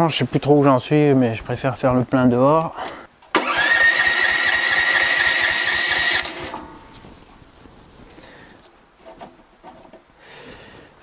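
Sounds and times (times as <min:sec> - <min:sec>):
electric starter cranking engine: 0:03.3 - 0:06.6.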